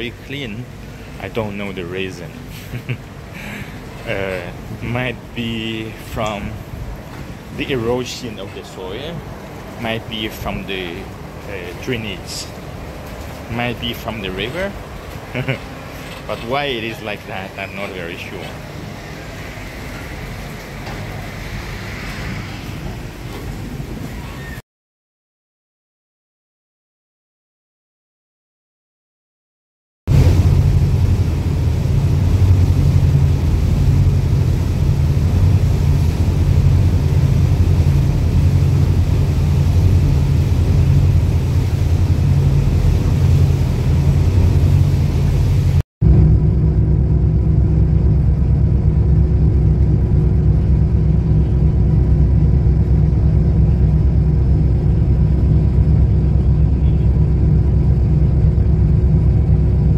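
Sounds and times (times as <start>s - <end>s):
ferry engine drone: 0.0s - 24.4s, 30.1s - 59.9s
wind and water rushing: 0.0s - 24.6s, 30.1s - 45.8s
faint steady hum: 30.1s - 59.9s.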